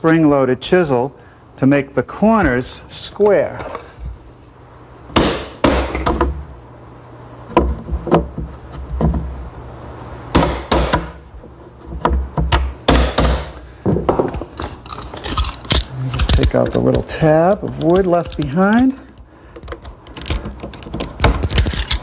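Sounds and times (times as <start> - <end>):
hammer knocking on chisel: 11.9 - 14.3.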